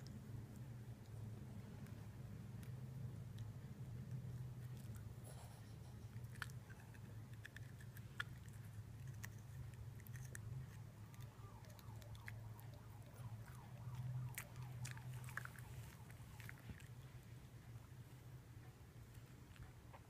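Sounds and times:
low hum: 0.0s - 20.0s
dog crunching carrot: 2.5s - 17.3s.

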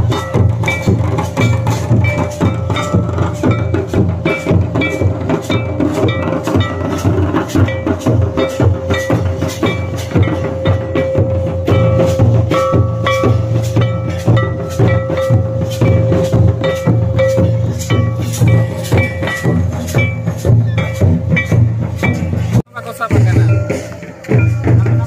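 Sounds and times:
drums beating quick rhythm: 0.0s - 25.0s.

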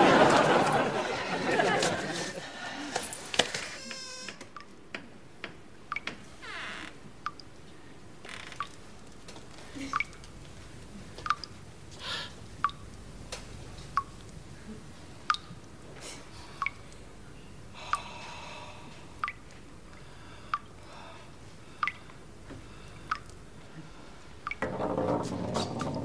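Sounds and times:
water dripping: 4.5s - 6.2s, 7.2s - 11.7s, 12.5s - 18.3s, 18.9s - 24.8s.

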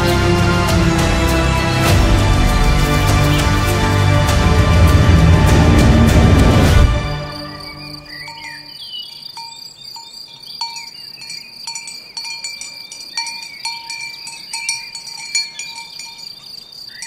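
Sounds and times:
crickets chirring: 7.2s - 17.0s
cowbells clanking: 8.1s - 17.0s.

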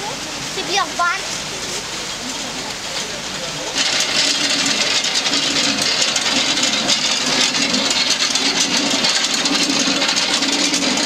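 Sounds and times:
millstone rattling clatter: 2.8s - 11.0s.

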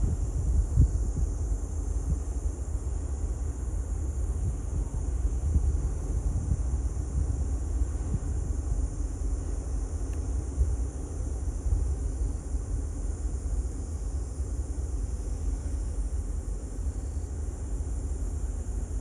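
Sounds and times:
wind buffeting microphone: 0.0s - 2.6s, 3.6s - 13.0s.

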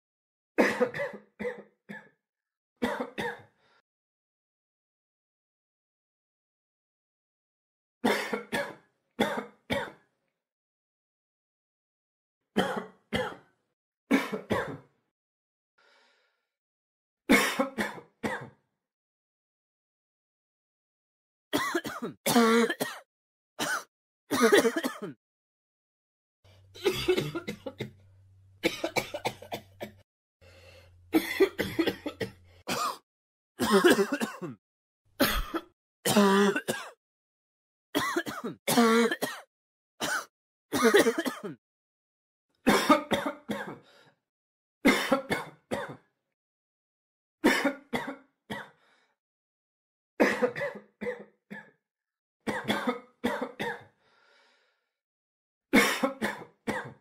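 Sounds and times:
person coughing: 0.6s - 2.2s, 8.1s - 10.0s, 14.1s - 14.9s, 17.3s - 18.6s, 21.6s - 25.2s, 26.8s - 27.9s, 28.6s - 30.0s, 31.2s - 33.0s, 33.6s - 34.6s, 35.2s - 37.0s, 38.0s - 41.6s, 42.7s - 43.8s, 44.9s - 46.1s, 47.5s - 48.8s, 50.2s - 51.8s, 52.5s - 53.9s, 55.8s - 57.0s.

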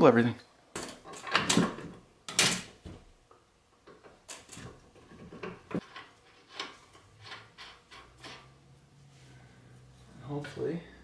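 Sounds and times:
metallic clicks and knocks: 3.8s - 8.5s.

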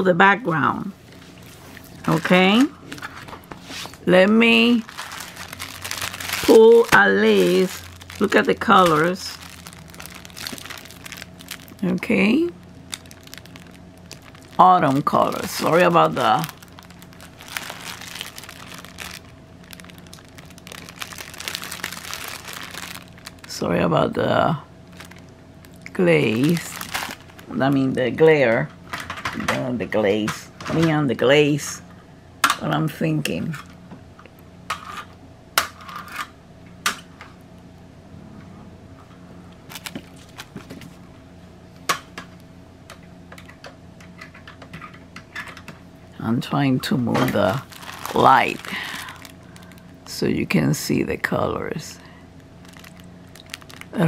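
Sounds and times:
faint steady hum: 0.0s - 54.0s
plastic bag crinkling: 1.5s - 28.0s, 39.6s - 41.0s, 46.4s - 50.6s, 51.2s - 54.0s.

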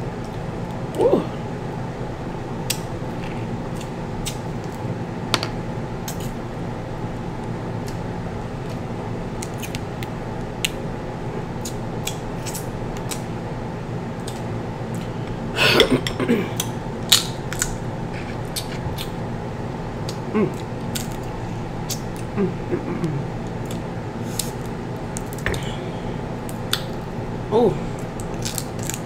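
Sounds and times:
steady background hum: 0.0s - 29.0s
eating sounds: 15.8s - 19.2s
crab shells cracking: 28.0s - 29.0s.

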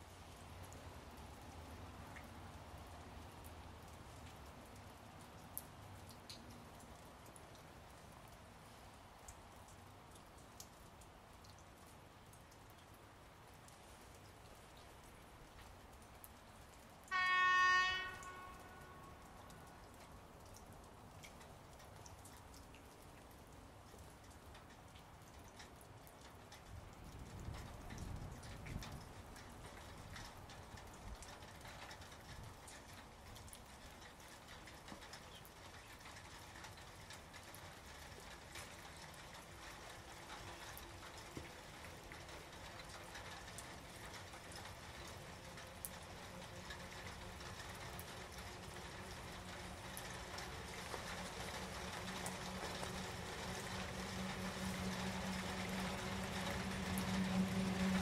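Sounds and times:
raindrops ticking and dripping: 0.0s - 58.0s
electric locomotive hum: 37.4s - 58.0s.

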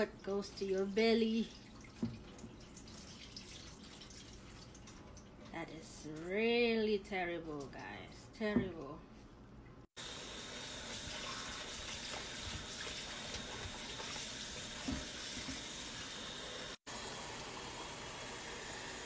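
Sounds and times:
tap water splashing: 1.6s - 5.5s, 10.8s - 16.0s.

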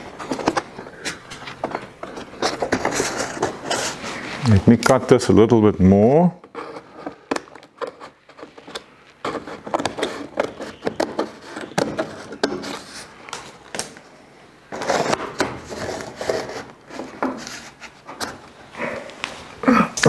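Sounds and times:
paper crinkling and rubbing: 0.0s - 4.7s, 8.0s - 13.9s, 14.7s - 18.2s.

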